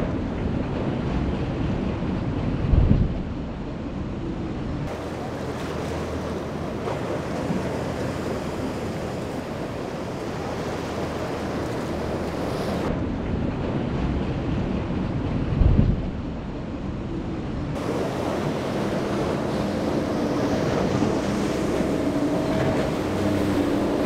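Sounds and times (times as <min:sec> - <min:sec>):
wind buffeting microphone: 0:00.0 - 0:24.0
surf breaking: 0:04.9 - 0:12.9, 0:17.8 - 0:24.0.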